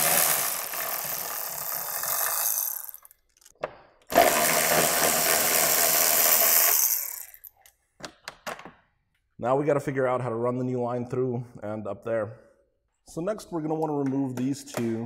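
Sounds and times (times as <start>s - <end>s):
ratchet turning: 0.0s - 3.5s, 4.1s - 7.5s.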